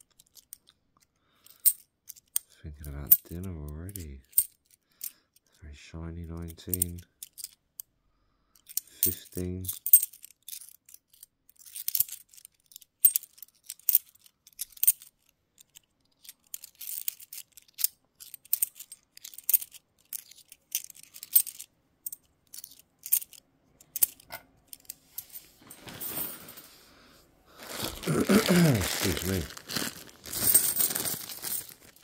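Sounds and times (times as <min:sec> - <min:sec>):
coins clinking: 0:08.7 - 0:26.8, 0:27.7 - 0:32.0
soft rustle: 0:24.8 - 0:32.0.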